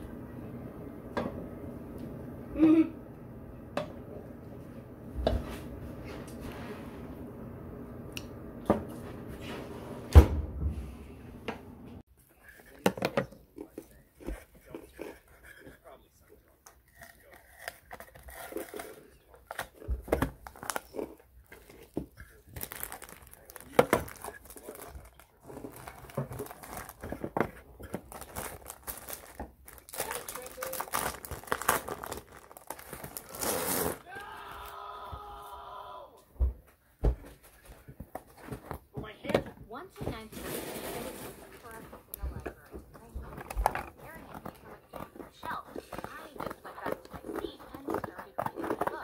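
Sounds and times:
plastic sheet crinkling: 0:17.7 - 0:34.1.

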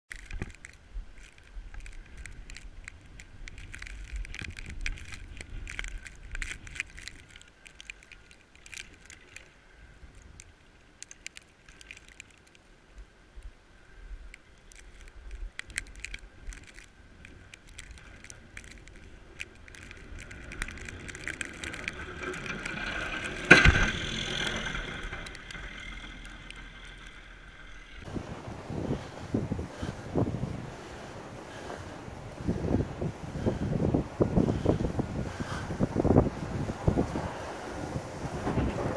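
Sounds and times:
rattling clicks on camera: 0:00.1 - 0:09.6, 0:14.6 - 0:27.2
wind rumble: 0:00.1 - 0:11.0, 0:12.9 - 0:38.9
snowplow passing: 0:19.2 - 0:38.9.

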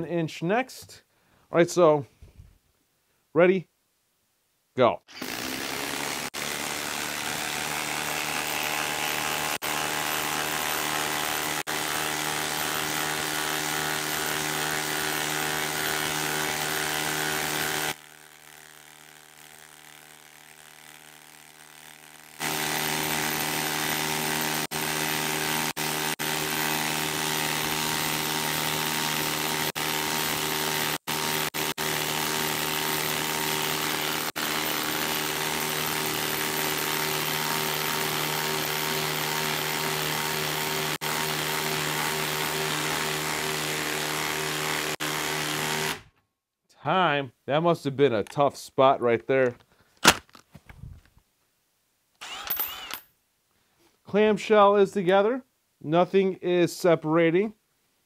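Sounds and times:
impact driver hammering: 0:05.1 - 0:46.1, 0:52.2 - 0:53.0.

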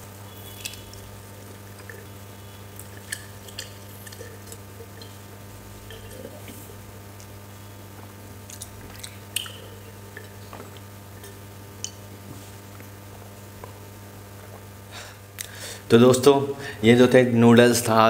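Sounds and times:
man sipping and swallowing: 0:00.5 - 0:13.8
wet clicks: 0:08.5 - 0:12.0.

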